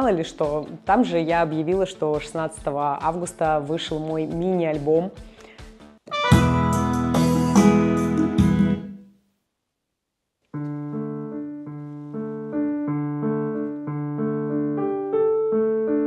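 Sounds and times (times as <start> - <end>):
background music: 0.0 - 9.1
digital piano melody: 6.1 - 9.0, 10.6 - 16.0.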